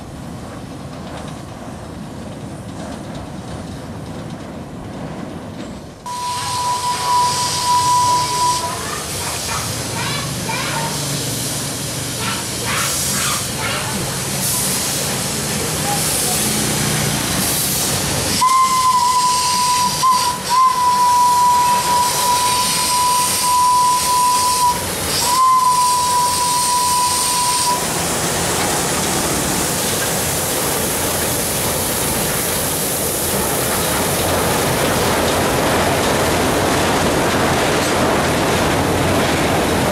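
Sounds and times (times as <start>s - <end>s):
passing train rumble: 0.0s - 39.9s
steam locomotive whistle: 6.1s - 9.2s, 18.4s - 28.0s
steam hissing: 6.1s - 35.8s.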